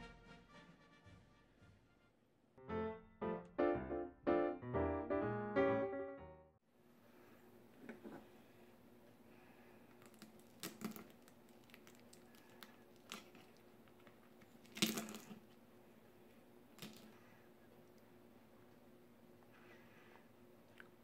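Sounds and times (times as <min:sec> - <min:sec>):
faint steady hum: 0:06.7 - 0:21.0.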